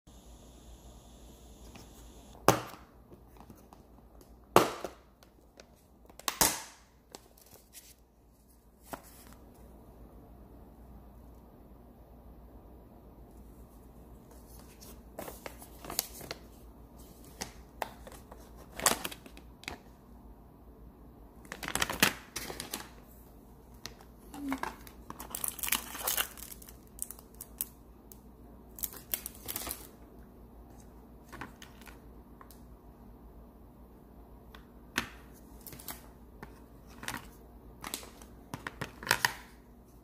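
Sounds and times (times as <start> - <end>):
plastic packaging crinkling: 24.4 - 27.8, 28.8 - 30.0.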